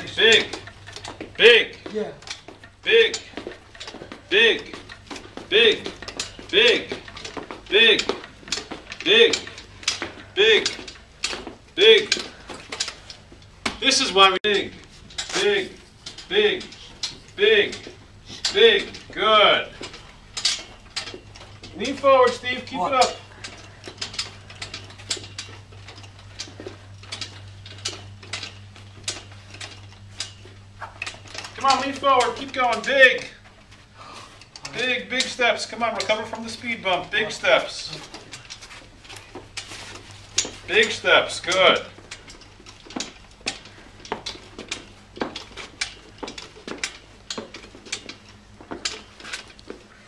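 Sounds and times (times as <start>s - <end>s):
wheeled walker clicking: 0.0s - 50.0s.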